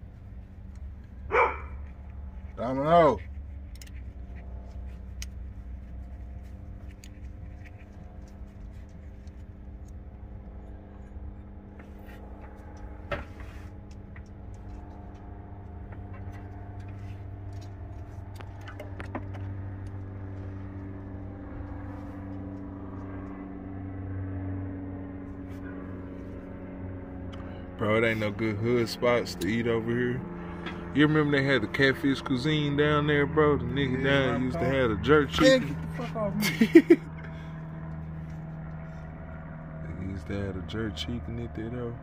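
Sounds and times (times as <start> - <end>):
low mechanical hum: 0.0 - 42.0.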